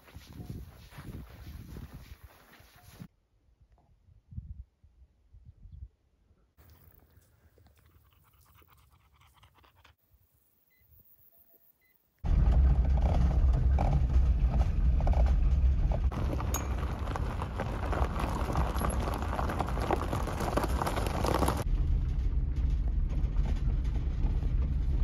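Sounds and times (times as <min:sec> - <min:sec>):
car engine rumble: 0:12.2 - 0:25.0
tires crunching gravel: 0:12.2 - 0:25.0.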